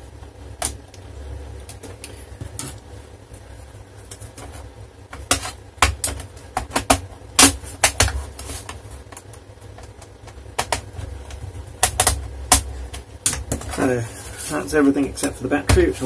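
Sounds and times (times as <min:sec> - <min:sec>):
laptop parts clicking and knocking: 0:00.6 - 0:01.0, 0:04.0 - 0:13.8.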